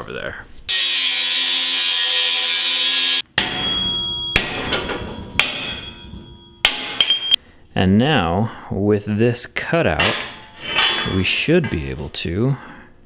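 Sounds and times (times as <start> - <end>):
angle grinder cutting steel: 0.7 - 3.2
metal strikes ringing: 3.3 - 7.4, 9.9 - 12.0.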